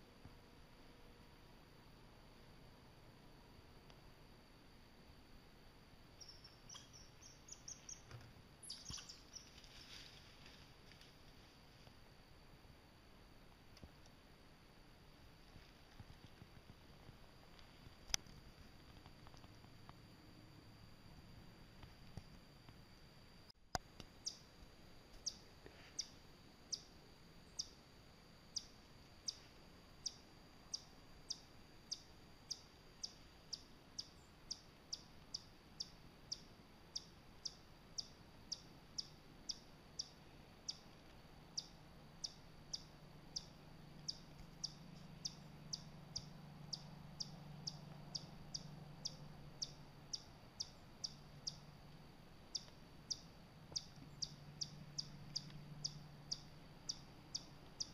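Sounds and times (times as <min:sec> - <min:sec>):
faint low hum: 0:00.0 - 0:57.9.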